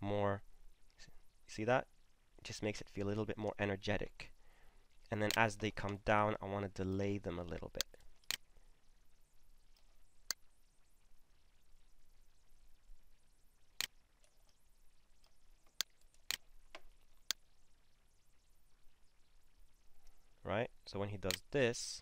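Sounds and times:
computer mouse clicks: 5.2s - 6.0s, 13.8s - 14.6s, 21.3s - 21.5s.

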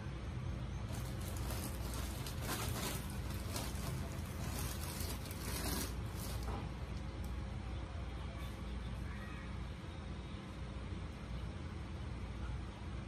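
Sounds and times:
material rustling and crinkling: 0.9s - 6.9s.

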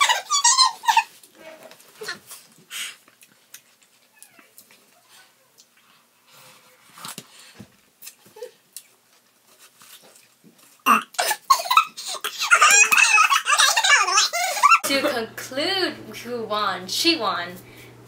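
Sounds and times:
throaty cough-like outburst: 10.8s - 12.8s
women laughing: 11.2s - 15.2s.

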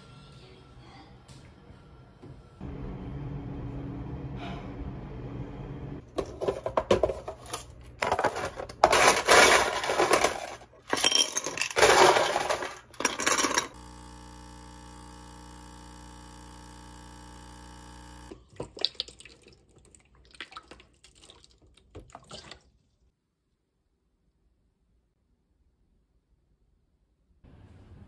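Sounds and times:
ice cubes clinking into glass: 7.4s - 13.8s
coffee machine humming: 11.8s - 18.4s.

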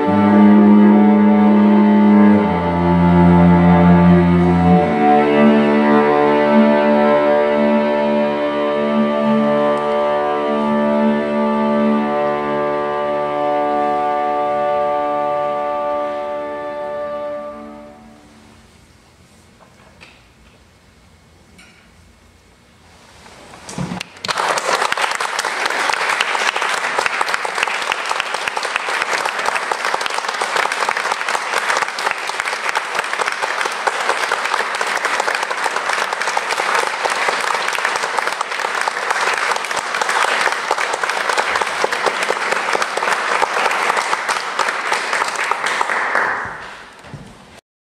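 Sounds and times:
audience applauding: 24.0s - 47.0s.

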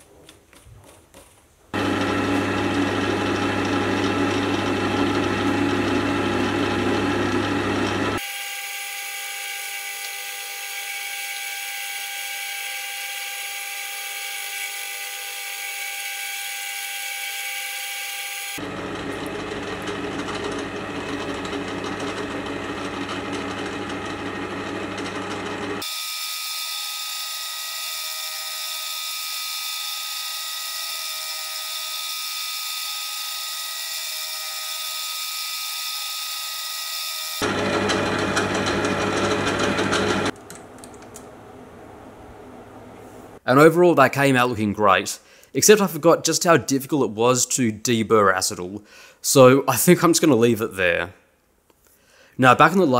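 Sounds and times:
metal lathe whine: 1.8s - 40.3s.

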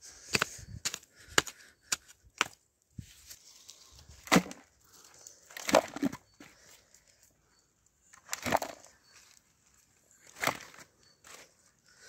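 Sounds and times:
earth thudding into plastic bucket: 4.2s - 4.7s, 5.6s - 6.2s
metal hoe chopping into soil: 4.2s - 4.7s, 5.6s - 6.2s, 10.2s - 10.9s.

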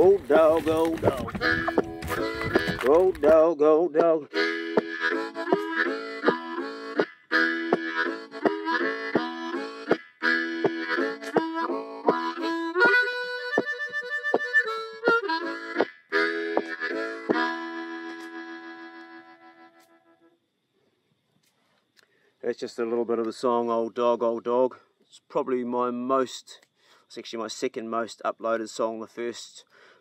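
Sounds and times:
harmonica playing blues riff: 0.0s - 3.4s, 4.0s - 20.2s.

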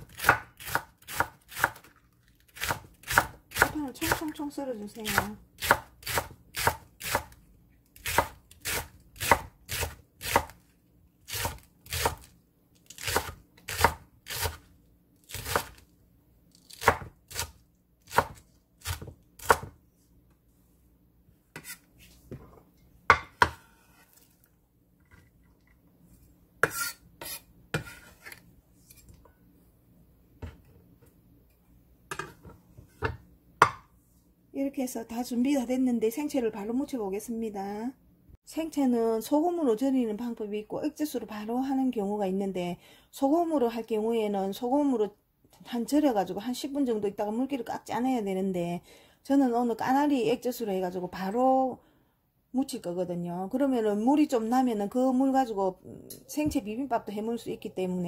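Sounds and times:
knife chopping on wooden board: 18.1s - 19.8s, 23.1s - 23.7s, 26.6s - 28.3s, 33.0s - 33.9s.

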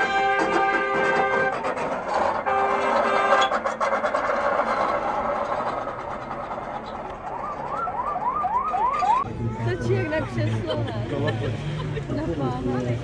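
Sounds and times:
blaring horn-like tone: 0.0s - 1.7s, 2.4s - 3.6s
rough scraping noise: 0.0s - 8.4s
street noise: 0.0s - 13.0s.

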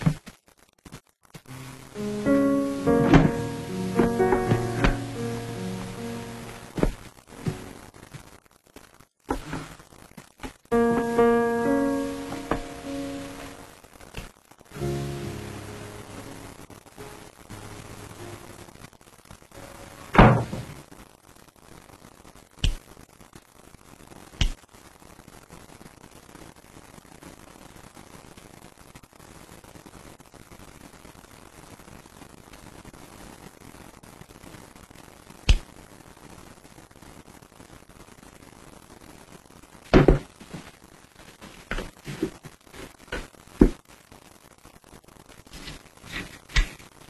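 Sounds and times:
heavy thump: 2.9s - 5.1s.

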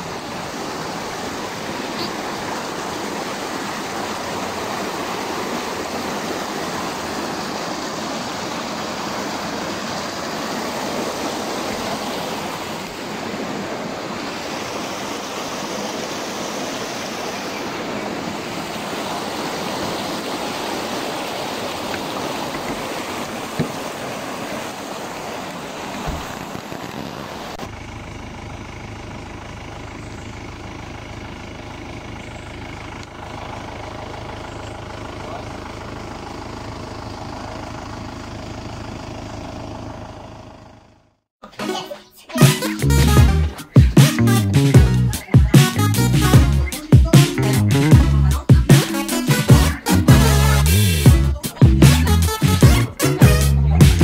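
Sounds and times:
creek rushing over rocks: 0.0s - 27.7s
sharp knocks: 23.5s - 23.9s.

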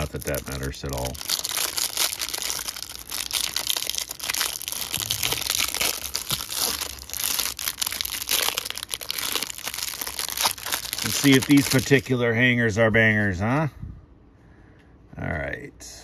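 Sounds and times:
plastic wrapper crinkling: 0.0s - 12.2s.

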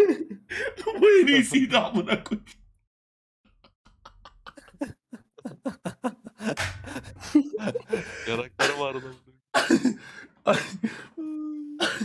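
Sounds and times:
man laughing in bursts: 3.9s - 10.8s.

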